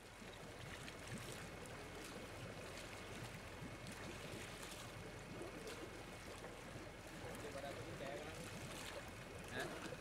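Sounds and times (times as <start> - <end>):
water splashing and churning: 0.0 - 10.0.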